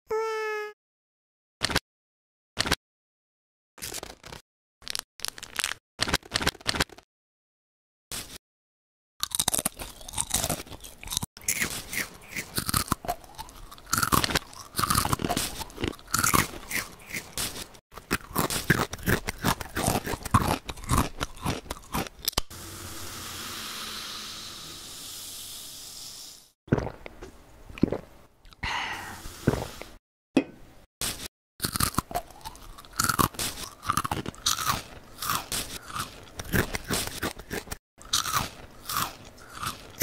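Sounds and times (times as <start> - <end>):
chewing crunchy snacks: 3.8 - 7.0, 9.2 - 22.4, 31.6 - 40.0.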